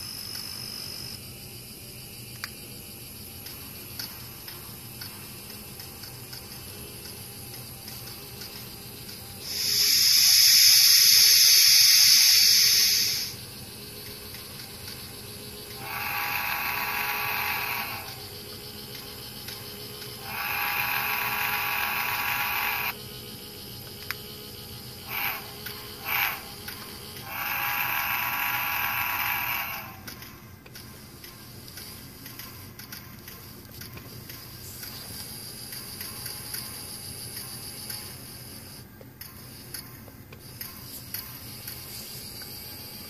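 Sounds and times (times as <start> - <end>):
steam hiss from small speaker: 9.4 - 13.5, 15.7 - 18.3, 20.2 - 23.0, 25.0 - 26.6, 27.2 - 30.3
train whistle blasts: 27.2 - 30.0.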